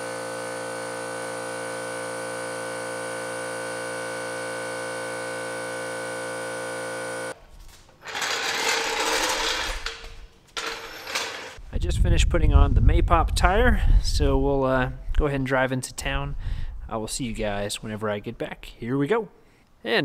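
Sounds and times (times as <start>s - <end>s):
floor jack rolling on concrete: 8.0s - 11.6s.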